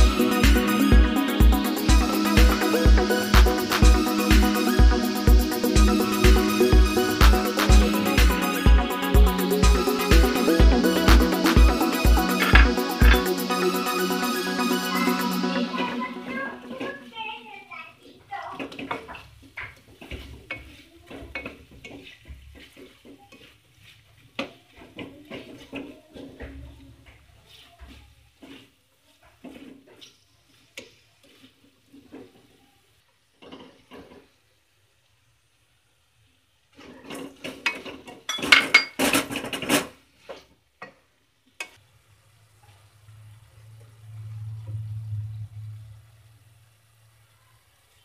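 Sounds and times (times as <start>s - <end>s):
frying sizzle: 0.0s - 48.0s
spatula scraping pan: 0.2s - 17.1s, 18.4s - 32.6s
spatula scraping a pan: 18.4s - 32.6s, 33.3s - 34.4s, 38.8s - 40.5s
spatula tapping: 18.6s - 31.5s.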